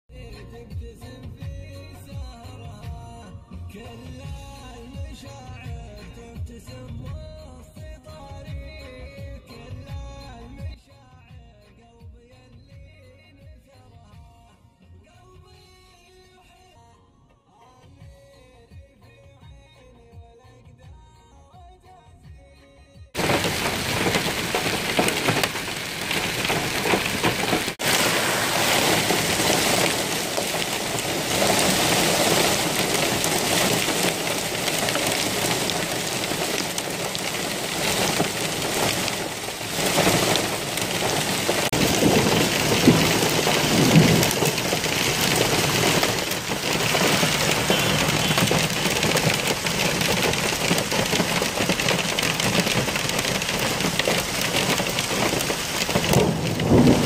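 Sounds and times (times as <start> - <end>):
heavy rain and hail pelting: 23.2 - 57.0.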